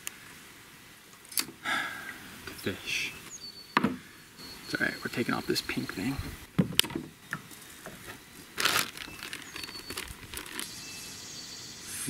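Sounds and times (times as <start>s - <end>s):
plastic crinkling rustle: 7.5s - 10.8s.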